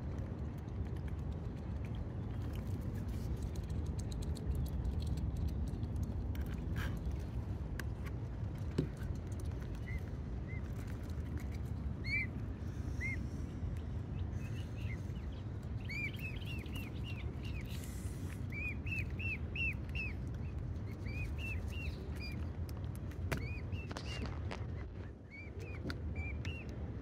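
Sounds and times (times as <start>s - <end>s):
bird chirping: 14.4s - 17.8s, 18.5s - 20.2s.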